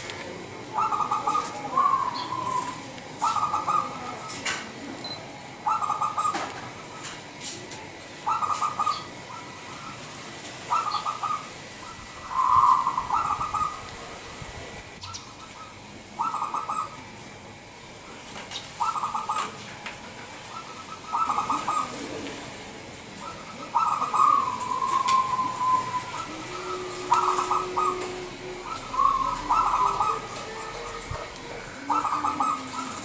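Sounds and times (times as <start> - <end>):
dove cooing: 0.0 - 7.2, 8.0 - 14.4, 15.0 - 17.2, 18.6 - 33.0.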